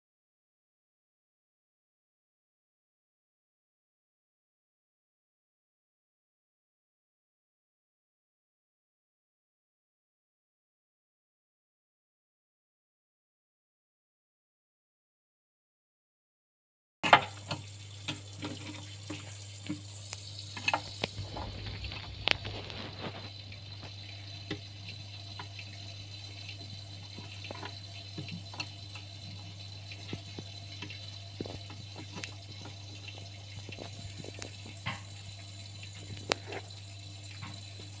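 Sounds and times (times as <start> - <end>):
water trickling: 17.0 - 38.0.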